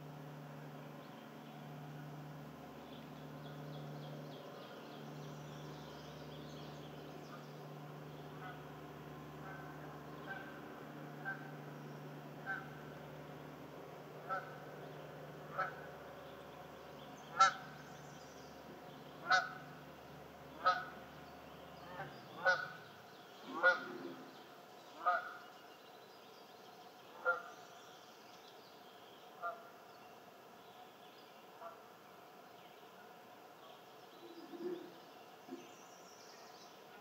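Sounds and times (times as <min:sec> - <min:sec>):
low steady hum: 0:00.0 - 0:37.0
bird honking: 0:07.2 - 0:13.1, 0:14.2 - 0:16.4, 0:17.2 - 0:18.0, 0:19.2 - 0:19.8, 0:20.5 - 0:21.0, 0:21.8 - 0:24.3, 0:24.9 - 0:25.5, 0:27.1 - 0:27.6, 0:29.4 - 0:29.7.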